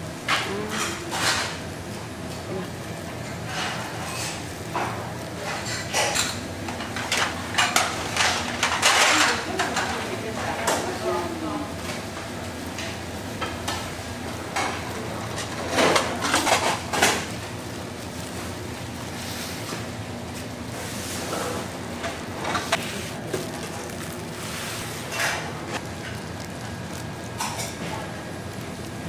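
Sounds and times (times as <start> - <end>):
dishes and utensils clattering: 0.3 - 1.6, 3.2 - 11.0, 14.5 - 17.3, 24.9 - 26.2, 27.4 - 28.1.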